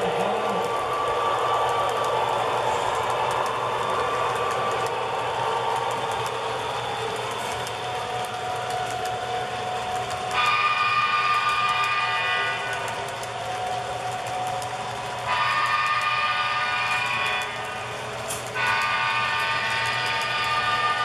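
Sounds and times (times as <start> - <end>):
model train wheels rattling: 0.0 - 16.2
model locomotive horn: 10.3 - 12.9, 15.3 - 17.8, 18.5 - 21.0.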